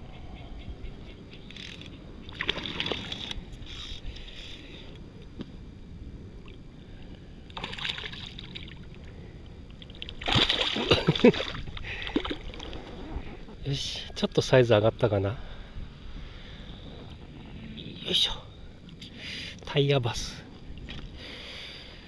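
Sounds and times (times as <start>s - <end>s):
low rumble of water and wind: 0.0s - 22.0s
fish thrashing and splashing: 9.9s - 12.8s.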